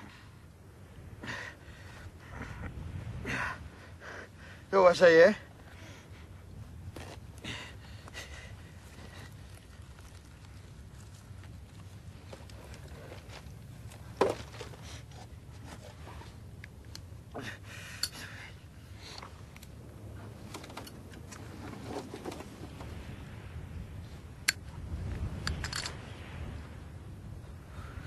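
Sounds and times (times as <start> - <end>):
soft rustling of clothing: 8.6 - 16.6.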